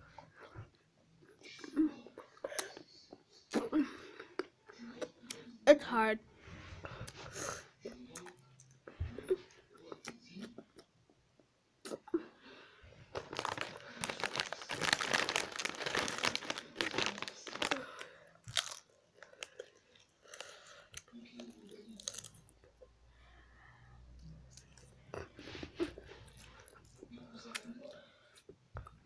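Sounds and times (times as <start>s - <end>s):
crisp packet crinkling: 13.1s - 19.8s
crisps being crunched and chewed: 13.1s - 22.6s.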